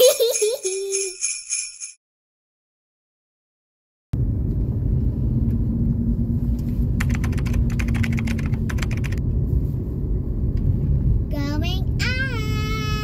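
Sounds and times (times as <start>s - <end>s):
car driving rumble: 4.2s - 13.0s
rapid clicking: 7.0s - 9.2s.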